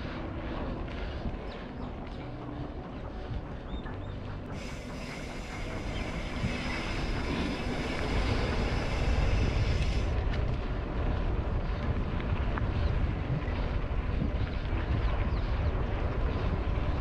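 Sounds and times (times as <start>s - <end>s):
bike tyres rumbling: 0.0s - 17.0s
wind buffeting microphone: 0.0s - 17.0s
high hiss: 4.5s - 10.2s.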